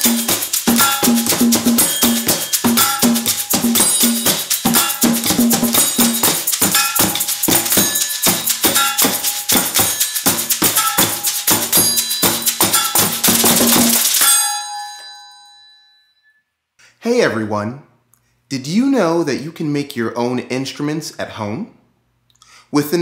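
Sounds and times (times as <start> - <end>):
percussion ensemble groove: 0.0 - 14.6
metallic ringing: 0.0 - 16.4.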